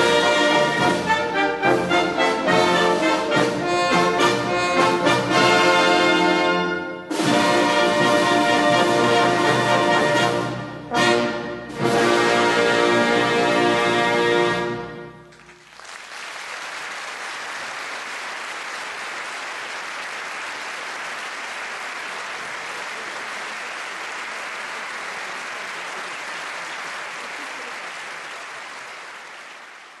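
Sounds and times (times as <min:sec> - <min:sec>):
audience applauding: 0:15.3 - 0:30.0.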